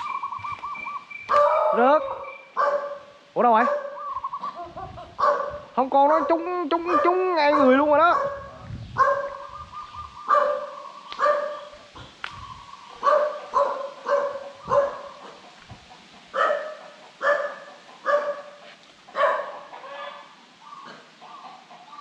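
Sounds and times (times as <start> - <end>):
dog barking: 1.3 - 4.0, 5.2 - 9.5, 10.3 - 11.9, 13.0 - 15.5, 16.3 - 20.3.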